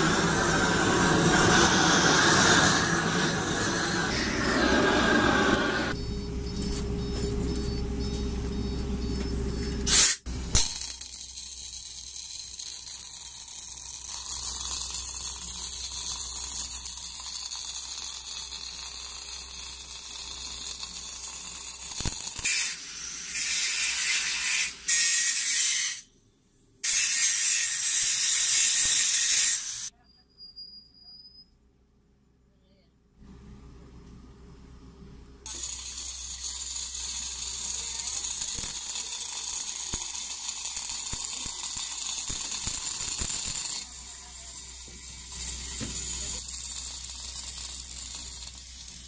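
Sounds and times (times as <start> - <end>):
angle grinder on pipe: 0.0 - 6.0, 26.8 - 29.9, 35.5 - 49.0
welding torch hissing: 0.0 - 6.0, 9.9 - 26.0, 26.9 - 29.9, 35.5 - 49.0
low machine hum: 0.0 - 10.6.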